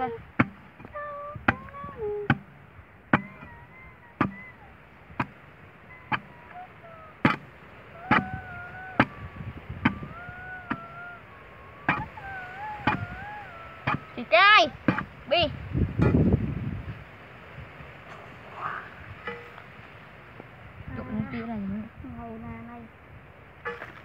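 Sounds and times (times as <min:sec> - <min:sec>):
digging bar striking stony soil: 0:00.0 - 0:00.9, 0:01.5 - 0:03.5, 0:07.2 - 0:07.5, 0:14.8 - 0:15.2, 0:19.3 - 0:19.6, 0:23.6 - 0:24.0
wavering pitched sound: 0:00.8 - 0:15.3.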